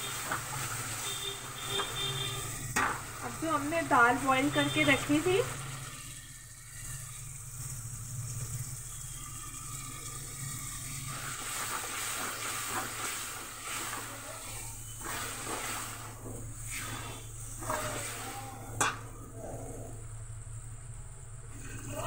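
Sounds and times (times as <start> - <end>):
spices sizzling in a pan: 0.0 - 19.2
ladle scraping a pan: 14.9 - 19.0.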